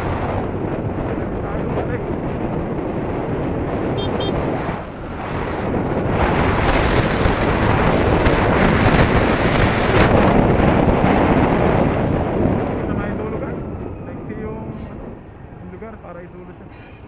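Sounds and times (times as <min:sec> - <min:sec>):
wind buffeting microphone: 0:00.0 - 0:17.0
short high beeps: 0:04.0 - 0:04.4.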